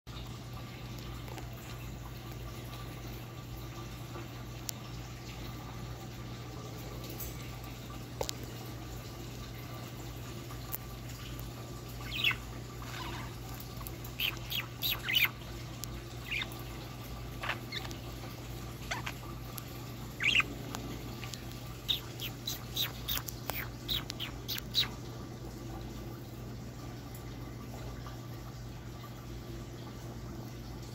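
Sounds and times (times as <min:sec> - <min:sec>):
budgerigars chirping and squeaking: 0:12.0 - 0:13.4, 0:14.1 - 0:15.4, 0:16.2 - 0:16.6, 0:17.4 - 0:18.0, 0:18.8 - 0:19.3, 0:20.2 - 0:20.6, 0:21.3 - 0:24.9.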